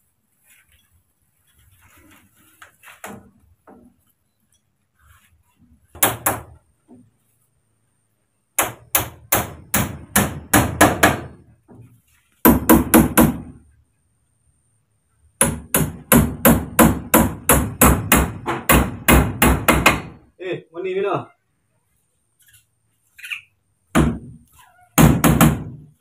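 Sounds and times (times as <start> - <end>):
hammer striking bamboo: 6.0 - 6.6, 8.6 - 11.4, 12.4 - 13.5, 15.4 - 20.2, 23.9 - 24.4, 25.0 - 25.9.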